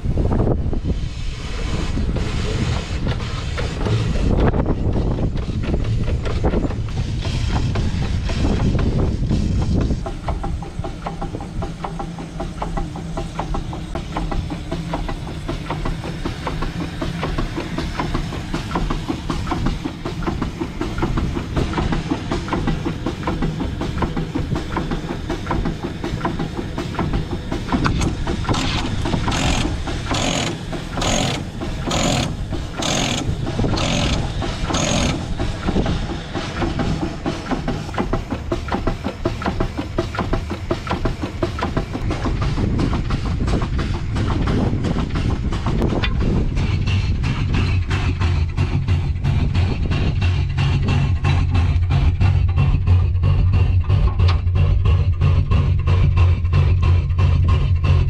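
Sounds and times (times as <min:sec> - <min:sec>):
steam engine clattering: 0:00.0 - 0:58.0
short steam hisses: 0:00.8 - 0:04.1.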